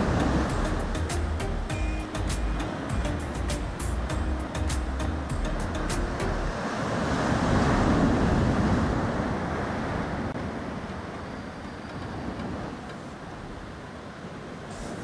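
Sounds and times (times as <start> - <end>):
wave breaking on beach: 0.0 - 1.2, 6.5 - 11.1.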